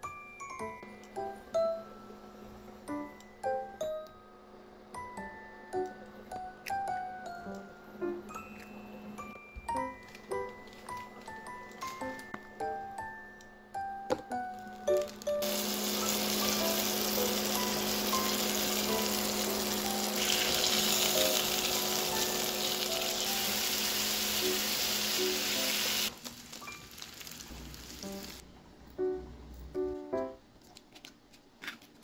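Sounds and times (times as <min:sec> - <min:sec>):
soft music with plucked notes: 0:05.0 - 0:23.7, 0:28.0 - 0:30.4
bacon sizzling in a pan: 0:15.0 - 0:28.4.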